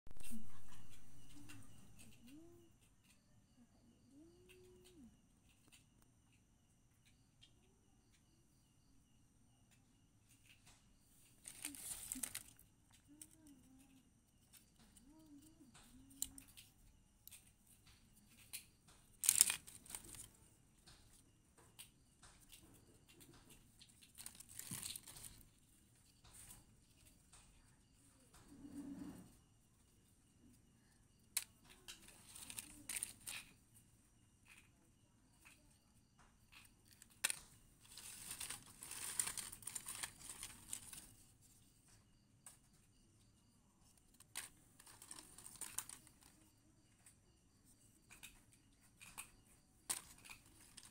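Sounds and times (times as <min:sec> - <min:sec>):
wood chips rustling and clicking: 0:11.2 - 0:13.5, 0:15.7 - 0:27.4, 0:31.4 - 0:33.6, 0:36.5 - 0:41.4, 0:44.0 - 0:46.6, 0:49.0 - 0:50.9.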